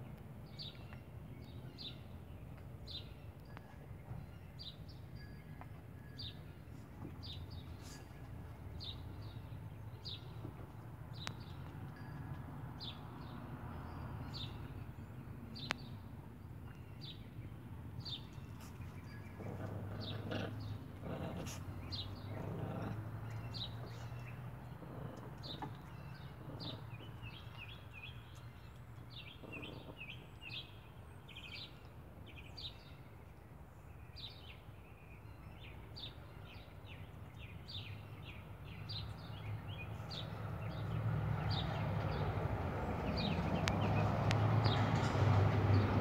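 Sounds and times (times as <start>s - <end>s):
small birds chirping: 14.3s - 45.0s.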